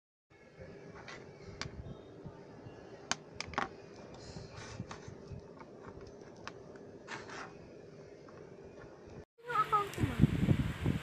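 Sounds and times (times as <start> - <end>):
antenna handling clicks and knocks: 3.1 - 4.2.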